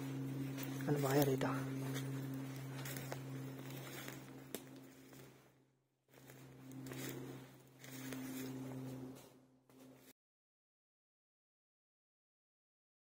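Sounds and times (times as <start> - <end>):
footsteps through dry leaves: 0.0 - 5.5, 6.1 - 10.1
steady low hum: 0.0 - 10.1
twigs snapping: 0.6 - 5.3.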